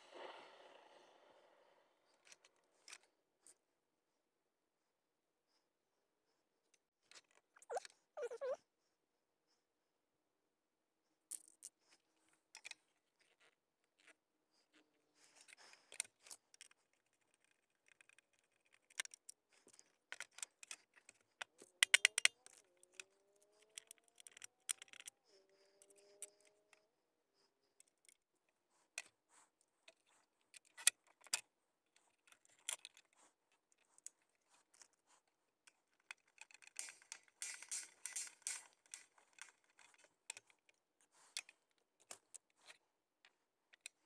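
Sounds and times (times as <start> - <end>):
plastic parts clicking and rattling: 11.3 - 14.2, 15.2 - 26.8, 27.7 - 44.0.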